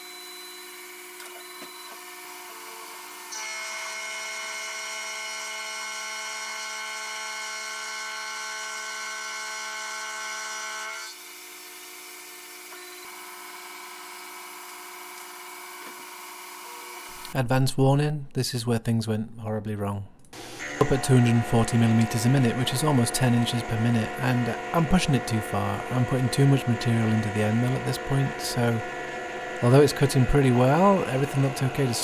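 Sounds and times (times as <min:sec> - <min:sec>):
end mill cutting whine: 0:20.4 - 0:32.0
milling spindle hum: 0:20.4 - 0:32.0.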